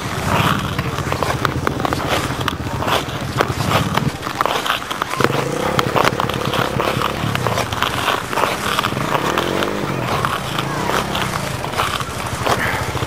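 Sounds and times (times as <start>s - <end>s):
quad bike engine revving: 0.0s - 13.0s
tyres scraping on ice: 0.0s - 13.0s.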